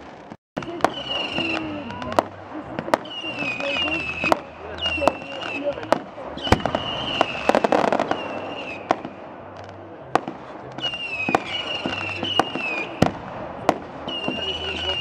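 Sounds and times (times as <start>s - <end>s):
fireworks bangs: 0.0s - 15.0s
high whistling tone: 0.6s - 2.2s, 3.0s - 9.3s, 10.8s - 13.1s, 14.1s - 15.0s.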